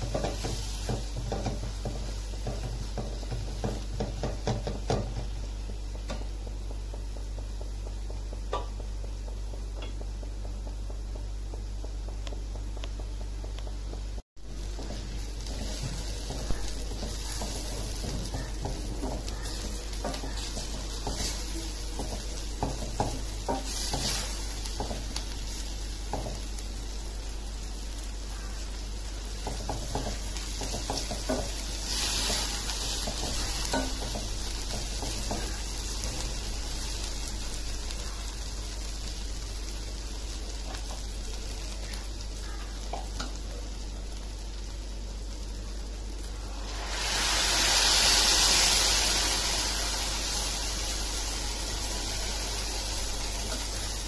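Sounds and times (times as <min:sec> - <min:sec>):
food sizzling in oil: 0:00.0 - 0:54.0
spatula stirring and scraping: 0:14.5 - 0:26.4, 0:29.3 - 0:36.0
stock poured into sizzling pan: 0:46.2 - 0:54.0.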